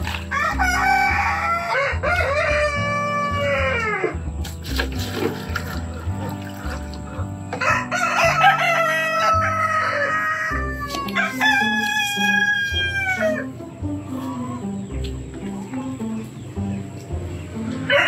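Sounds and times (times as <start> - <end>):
light rhythmic background music: 0.0 - 18.0
rooster crowing: 0.3 - 4.2, 7.5 - 13.6.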